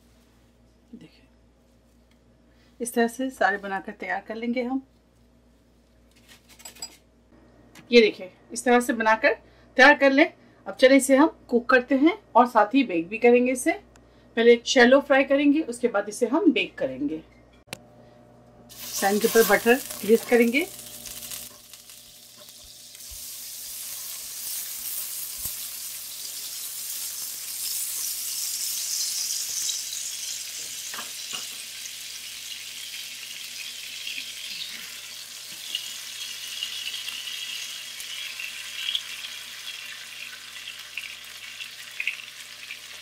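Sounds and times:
butter sizzling in frying pan: 0:18.7 - 0:43.0.

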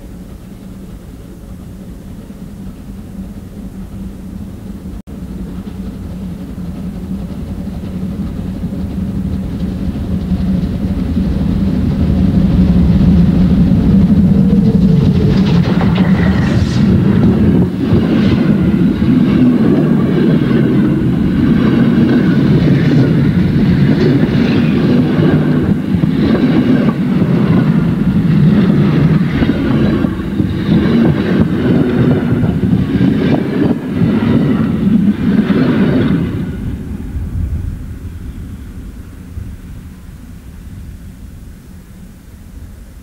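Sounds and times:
train coaches rumbling past: 0:00.0 - 0:43.0.

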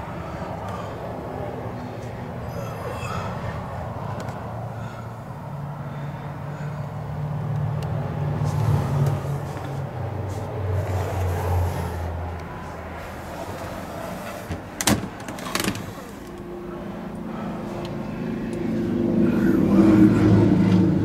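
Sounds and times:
low hum: 0:16.1 - 0:21.0.

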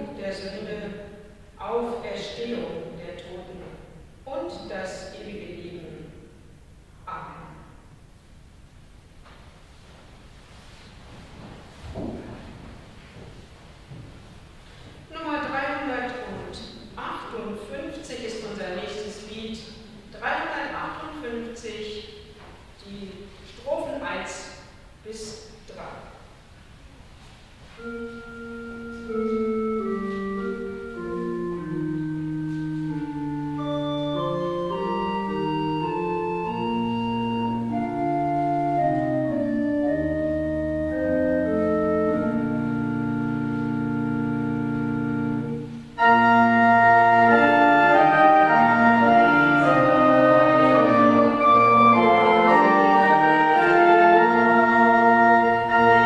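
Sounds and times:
church organ playing hymn: 0:27.7 - 0:56.0.

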